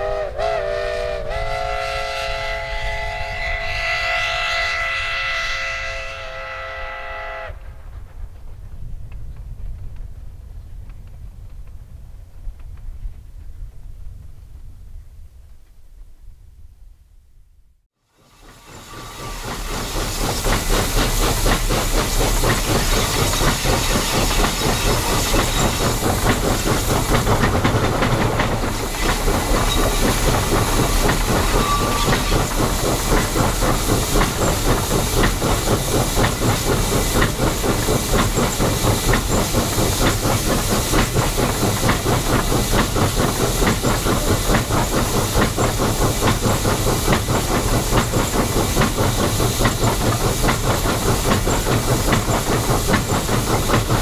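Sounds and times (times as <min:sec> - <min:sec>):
steam hiss with rhythmic beats: 0:18.1 - 0:54.0.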